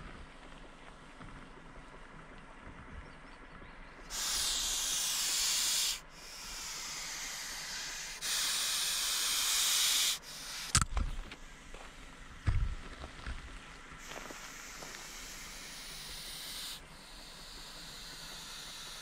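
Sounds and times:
snake hissing: 0:04.1 - 0:10.8, 0:14.0 - 0:19.0.

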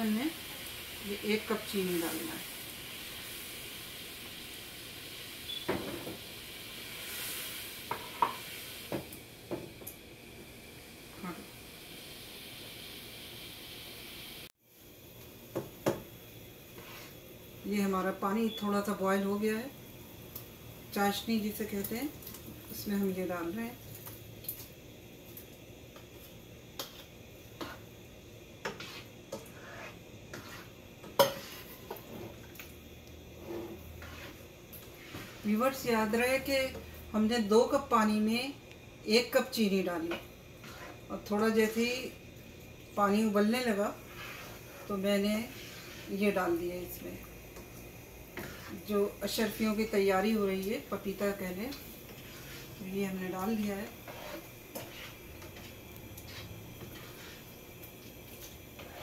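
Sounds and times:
sugar water hissing in a pan: 0:00.0 - 0:59.0
spoon stirring: 0:28.6 - 0:32.1, 0:33.7 - 0:35.5, 0:40.6 - 0:41.0, 0:52.1 - 0:57.5, 0:58.8 - 0:59.0.

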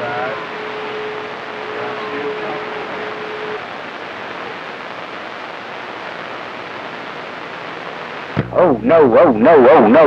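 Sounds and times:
radio static hiss: 0:00.0 - 0:10.0.

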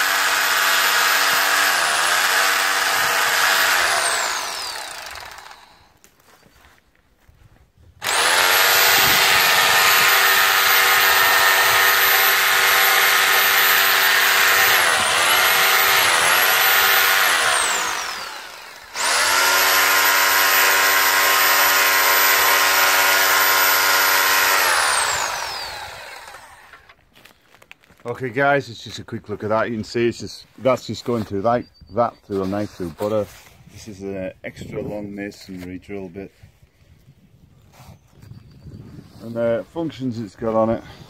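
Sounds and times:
rotary hammer drill boring into stone: 0:00.0 - 0:06.0, 0:08.0 - 0:26.9.

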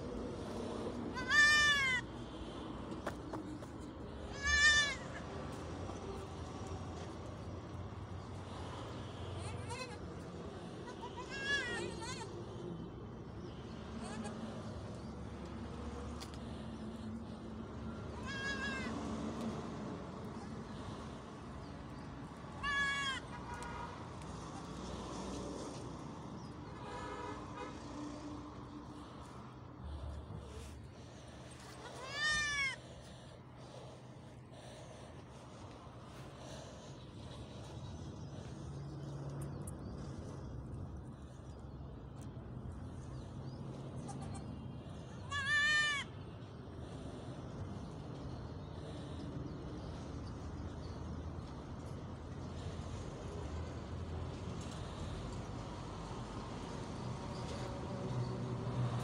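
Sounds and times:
goat kid bleating: 0:01.1 - 0:02.0, 0:04.3 - 0:05.2, 0:09.4 - 0:10.0, 0:10.8 - 0:12.4, 0:14.0 - 0:14.5, 0:18.1 - 0:18.9, 0:22.6 - 0:23.4, 0:31.7 - 0:32.8, 0:44.0 - 0:44.5, 0:45.2 - 0:46.2.

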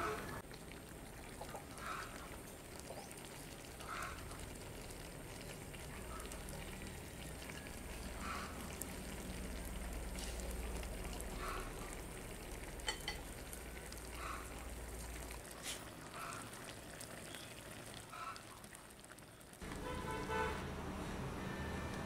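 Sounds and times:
broth simmering and bubbling: 0:00.0 - 0:22.0.

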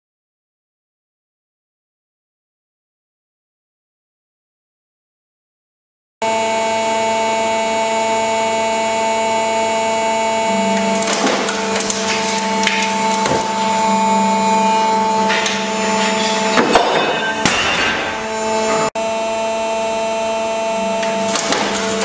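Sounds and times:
machine whining hum: 0:06.2 - 0:22.0
straps and frames cracking: 0:10.8 - 0:14.0, 0:21.0 - 0:22.0.

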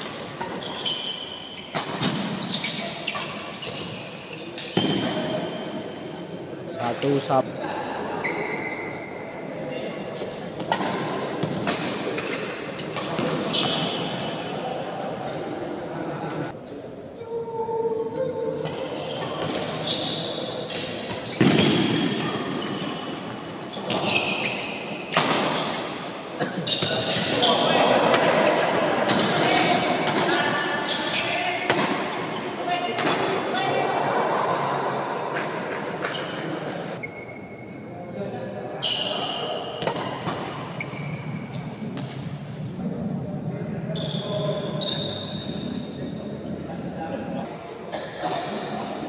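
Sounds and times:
shoes squeaking on court floor: 0:00.0 - 0:05.9, 0:09.9 - 0:14.4, 0:18.6 - 0:26.0, 0:26.6 - 0:27.9, 0:29.2 - 0:32.7, 0:35.7 - 0:37.8, 0:38.8 - 0:42.4, 0:43.9 - 0:46.8
rackets hitting shuttlecock: 0:39.8 - 0:40.6.

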